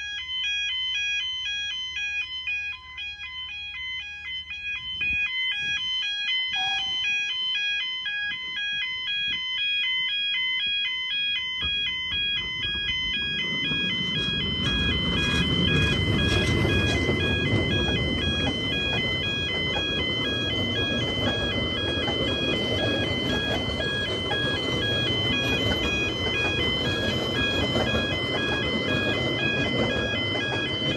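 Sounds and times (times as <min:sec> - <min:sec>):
level crossing alarm: 0:00.0 - 0:30.9
steam train passing: 0:06.5 - 0:07.3, 0:11.7 - 0:30.9.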